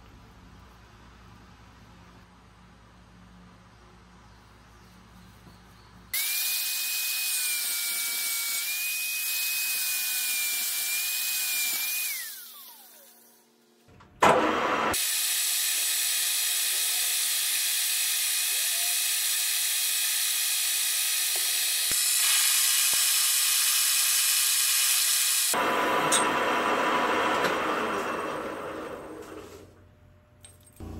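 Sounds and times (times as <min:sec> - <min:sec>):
small power tool motor whining: 0:06.2 - 0:13.6, 0:14.4 - 0:29.5.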